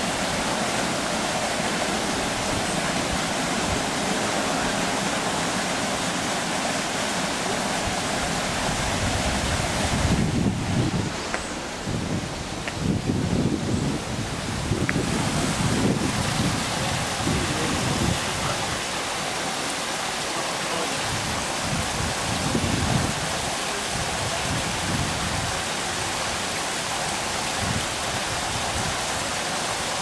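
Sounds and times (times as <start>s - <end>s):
waterfall splashing into pool: 0.0s - 11.9s, 14.3s - 30.0s
wind buffeting microphone: 7.9s - 18.8s, 21.0s - 23.3s.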